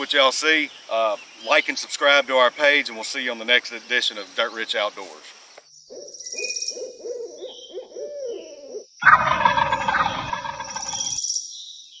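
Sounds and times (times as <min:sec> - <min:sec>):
owl hooting: 0:05.9 - 0:11.2
rough animal call: 0:06.8 - 0:11.2
pulsing insect trill: 0:09.0 - 0:11.4.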